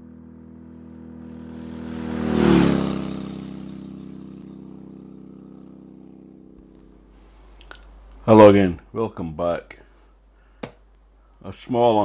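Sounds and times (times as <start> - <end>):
motorbike engine passing by: 0.0 - 7.6.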